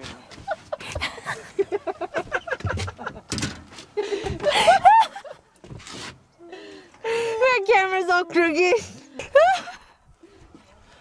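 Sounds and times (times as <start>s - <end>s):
people laughing: 0.3s - 3.3s, 4.0s - 5.5s, 9.1s - 10.0s
people chatting: 7.3s - 9.2s.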